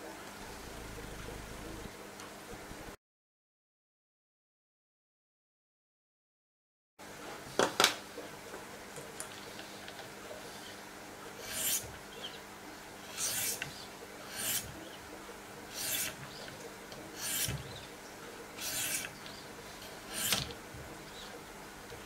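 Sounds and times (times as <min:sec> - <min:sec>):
sharpening stone rasping on knife: 0:11.4 - 0:11.9, 0:13.1 - 0:13.7, 0:14.3 - 0:14.7, 0:15.7 - 0:16.2, 0:17.2 - 0:17.6, 0:18.6 - 0:19.1, 0:20.1 - 0:20.5.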